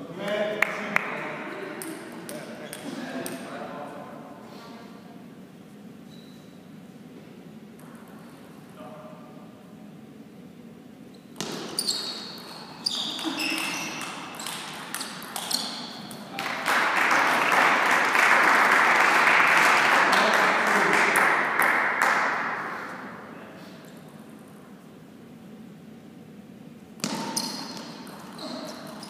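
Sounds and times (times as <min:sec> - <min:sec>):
shoes squeaking on floor: 0:06.0 - 0:06.6, 0:11.1 - 0:16.3, 0:27.0 - 0:29.0
spectators applauding and cheering: 0:16.3 - 0:22.6.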